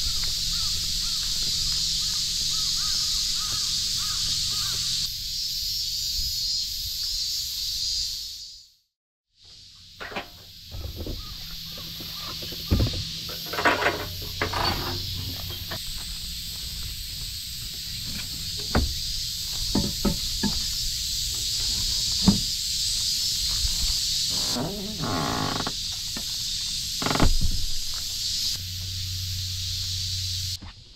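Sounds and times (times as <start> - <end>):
steady high hiss: 9.5 - 30.6
door knocks and rattles: 19.7 - 20.6.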